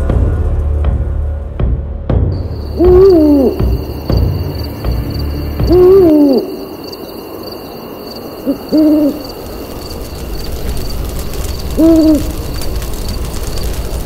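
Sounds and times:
owl hooting: 0:02.4 - 0:09.5, 0:11.6 - 0:12.5.

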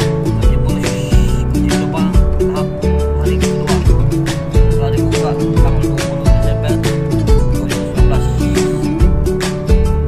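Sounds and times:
guitar-led song: 0:00.0 - 0:10.0.

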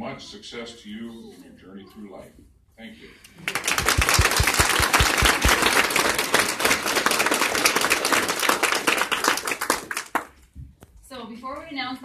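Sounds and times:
audience applauding: 0:03.4 - 0:10.3.

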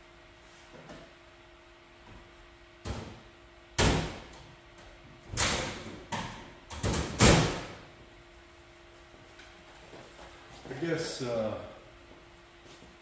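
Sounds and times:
metal cabinets knocking and banging: 0:05.3 - 0:07.8.

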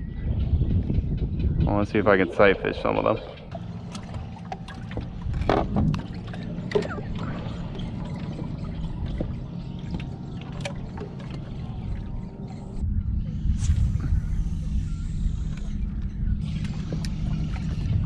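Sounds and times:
steady low rumble: 0:00.0 - 0:18.0
water trickling and splashing: 0:01.9 - 0:12.8, 0:15.9 - 0:18.0.

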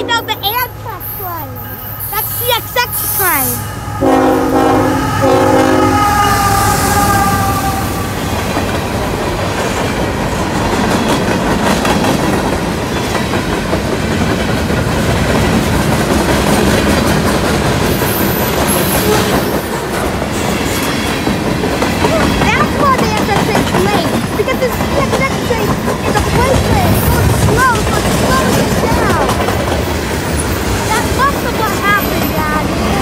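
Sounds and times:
freight train rumbling: 0:00.0 - 0:33.0
locomotive horn: 0:01.6 - 0:08.4
wheels clacking over rail joints: 0:08.3 - 0:33.0.

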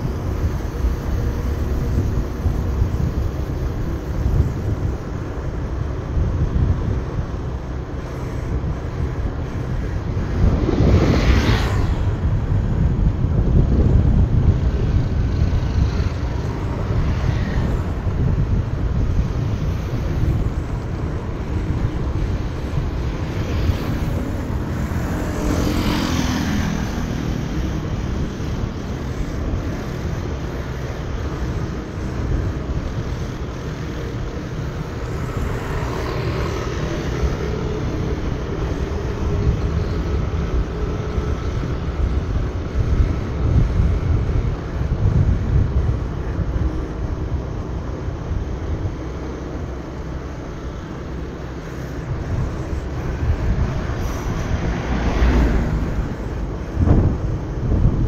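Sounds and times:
motorbike engine rumble: 0:00.0 - 0:58.0
tyres and wind noise: 0:00.0 - 0:58.0.

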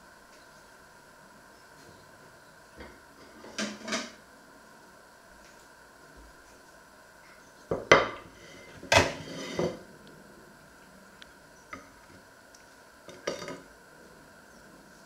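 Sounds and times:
china plate clattering on wood: 0:13.1 - 0:13.6
crockery clattering: 0:13.1 - 0:13.6.

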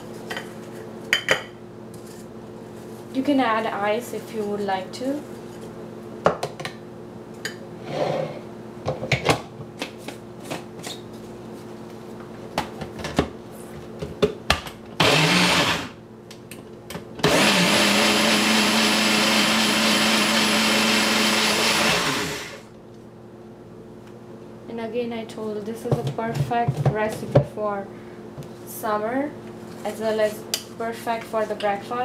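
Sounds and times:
blender running: 0:15.0 - 0:16.0, 0:17.2 - 0:22.7.

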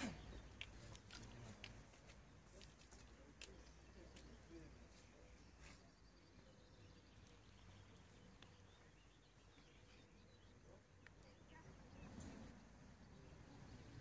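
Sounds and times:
faint bird chirps: 0:03.0 - 0:14.0.

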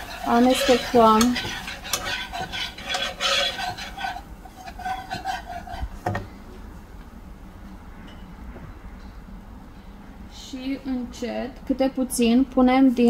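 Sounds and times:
whisk scraping in frying pan: 0:00.0 - 0:06.3
whisk tap: 0:00.6 - 0:03.9.

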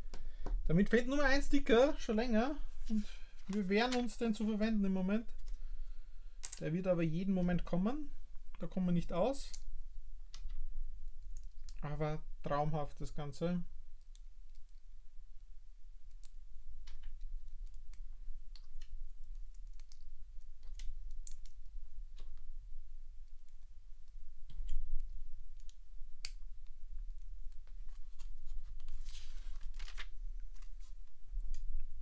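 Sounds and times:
low steady hum: 0:00.0 - 0:32.0.

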